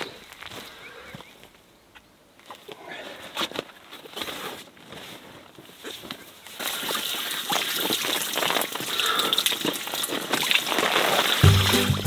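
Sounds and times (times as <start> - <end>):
water spraying and splashing: 6.6 - 12.0.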